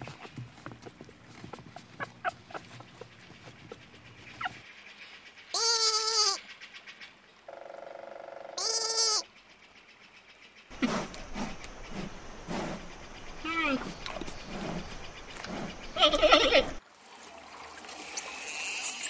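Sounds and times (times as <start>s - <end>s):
goat bleating: 5.6s - 6.4s, 8.6s - 9.2s, 16.0s - 16.8s.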